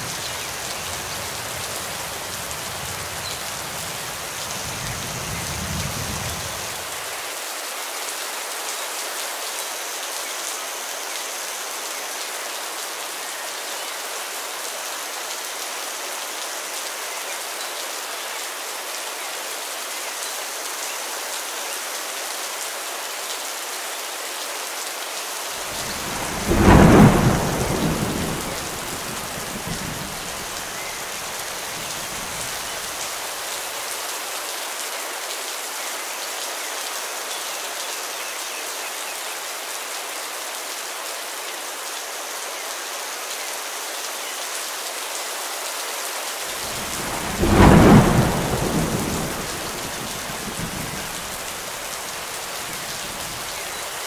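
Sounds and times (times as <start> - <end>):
steady rain: 0.0 - 54.0
thunder claps: 25.7 - 30.8, 46.6 - 51.9.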